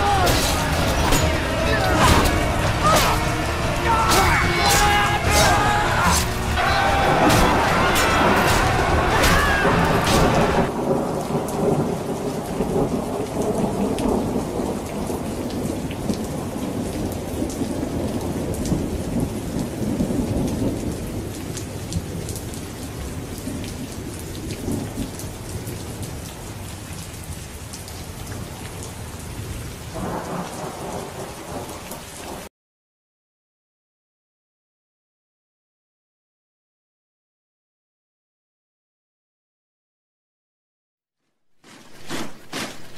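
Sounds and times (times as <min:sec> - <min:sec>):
loud din: 0:00.0 - 0:10.8
rolling thunder rumble: 0:00.0 - 0:21.4
steady rain: 0:00.0 - 0:32.5.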